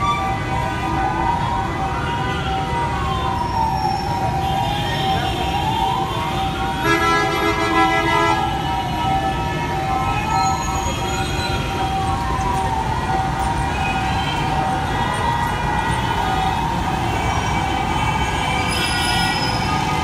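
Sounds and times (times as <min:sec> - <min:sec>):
emergency siren wailing: 0:00.0 - 0:20.0
road traffic rumble: 0:00.0 - 0:20.0
vehicle horn blast: 0:06.8 - 0:08.5.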